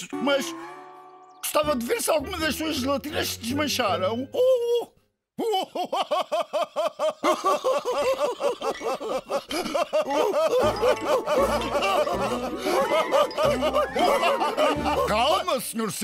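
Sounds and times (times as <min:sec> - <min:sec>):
cartoon men laughing: 0:04.3 - 0:15.7.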